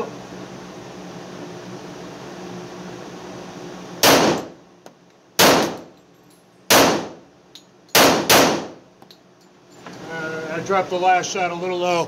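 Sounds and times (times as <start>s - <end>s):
pistol shots with echo: 4.0s - 4.5s, 5.4s - 5.9s, 6.7s - 7.2s, 7.9s - 8.8s.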